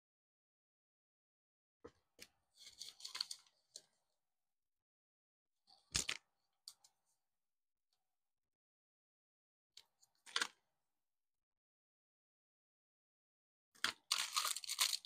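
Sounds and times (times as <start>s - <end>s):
paper crinkling and rustling: 2.6s - 3.6s, 13.8s - 15.0s.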